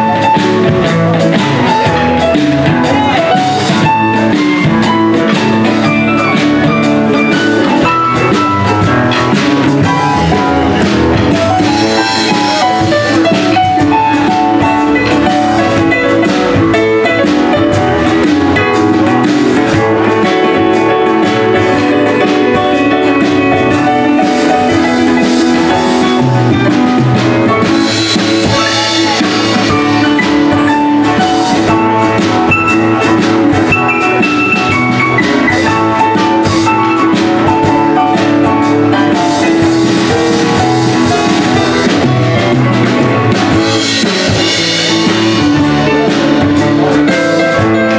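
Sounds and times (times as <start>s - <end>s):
drum kit: 0.0s - 47.9s
electric bass: 0.0s - 47.9s
electric guitar: 0.0s - 47.9s
electronic keyboard: 0.0s - 47.9s.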